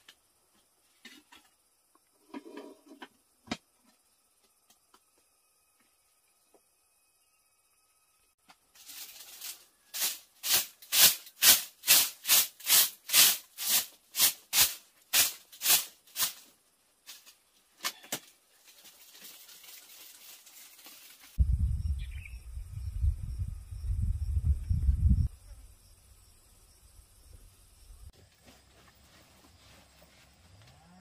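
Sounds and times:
bamboo sticks swishing on bamboo: 8.4s - 21.4s
wind buffeting microphone: 21.4s - 25.3s.

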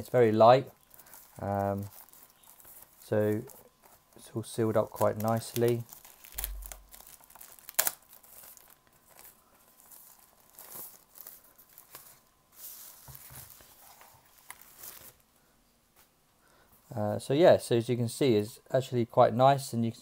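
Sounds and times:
plastic bag crinkling: 0.0s - 15.2s.

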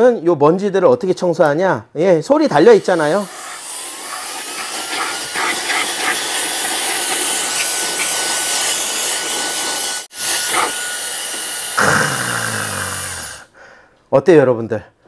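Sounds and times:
mini air gun blowing: 2.4s - 13.5s.

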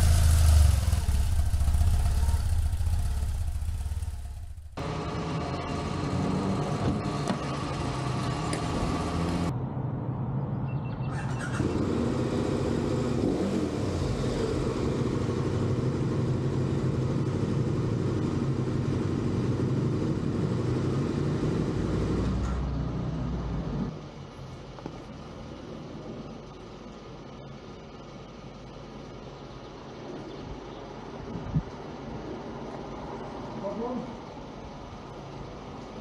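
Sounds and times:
engine running steadily: 0.0s - 9.5s.

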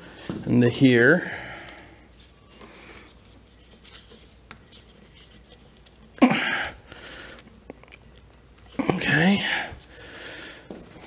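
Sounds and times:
cord rubbing: 3.1s - 6.2s.

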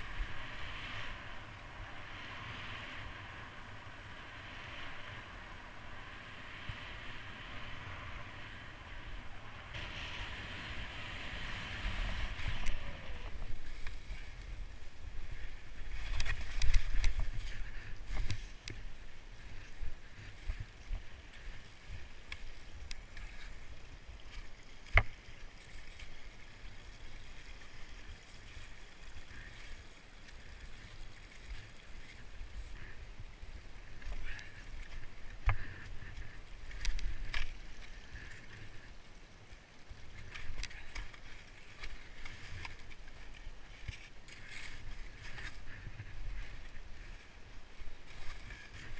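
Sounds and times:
wind rumble on microphone: 0.0s - 48.9s
faint running water: 8.8s - 48.9s.

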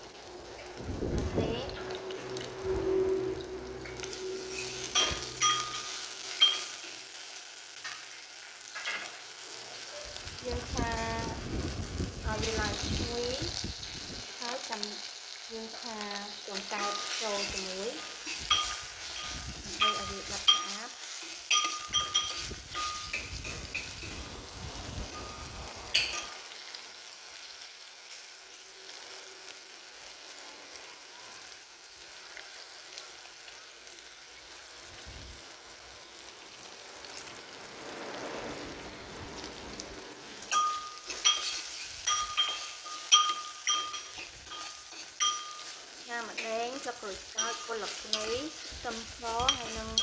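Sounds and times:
food sizzling in oil: 0.0s - 50.0s
metal ladle clinking on pot: 21.5s - 23.9s, 40.5s - 45.8s.

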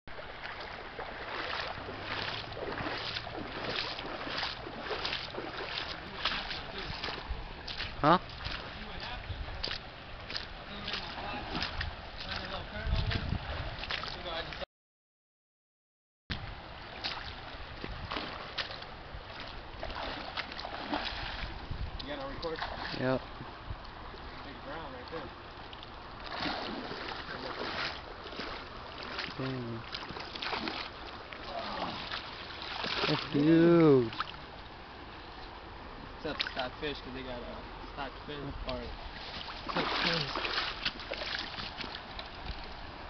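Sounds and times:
stream water running over rocks: 0.1s - 14.6s, 16.3s - 43.0s
fish splashing at surface: 26.3s - 27.9s.

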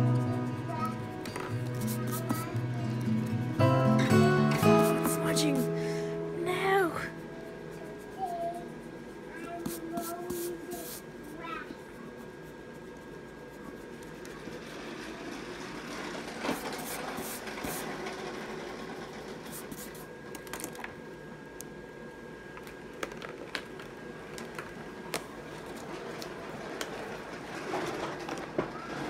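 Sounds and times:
faint hum: 0.0s - 27.3s
pen scratching on paper: 1.5s - 2.6s, 4.6s - 5.6s, 7.5s - 11.1s, 16.5s - 17.9s, 19.5s - 20.0s.

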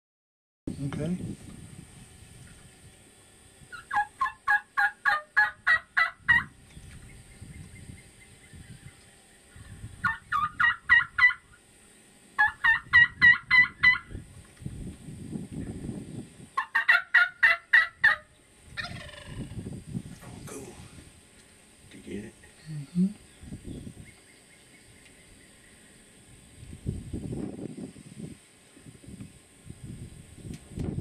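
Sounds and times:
turkey yelping: 3.7s - 6.5s, 9.6s - 11.6s, 12.4s - 14.2s, 16.6s - 19.6s
rattling turkey call: 3.7s - 6.6s, 9.5s - 11.6s, 12.4s - 14.2s, 16.6s - 19.7s.

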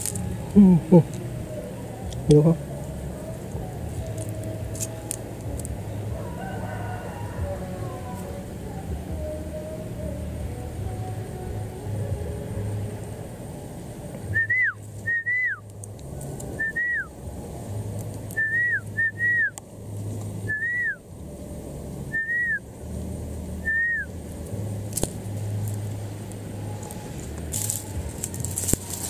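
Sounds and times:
short whistled notes: 14.3s - 15.6s, 16.6s - 17.1s, 18.4s - 19.6s, 20.4s - 21.0s, 22.1s - 22.6s, 23.6s - 24.1s.

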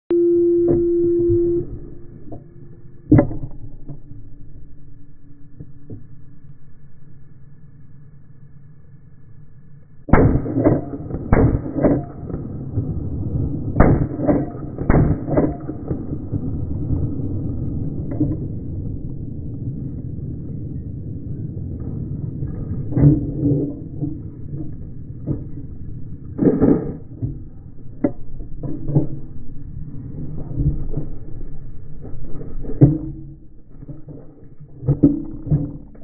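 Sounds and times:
steady low rumble: 0.2s - 36.0s
slow motion rifle shot booms: 10.1s - 23.3s.

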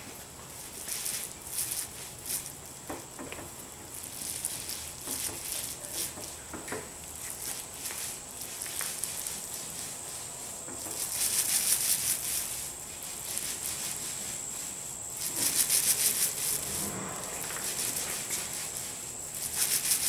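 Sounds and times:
paint roller wet crackle: 0.0s - 20.0s.

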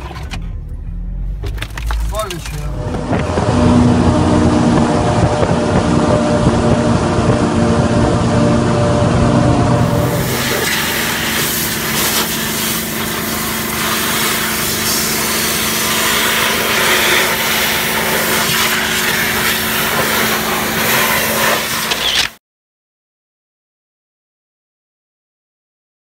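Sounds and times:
steady hum: 2.3s - 21.6s
pressure washer spray hissing: 9.9s - 22.0s.

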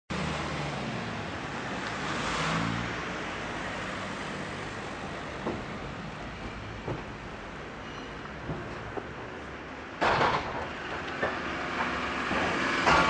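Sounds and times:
lorry engine rumble: 3.1s - 13.0s.

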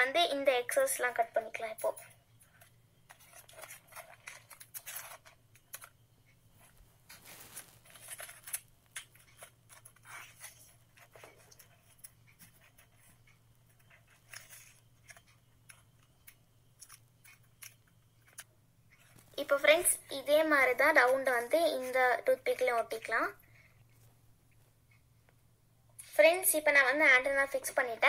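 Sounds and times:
paper handling: 6.6s - 13.2s.

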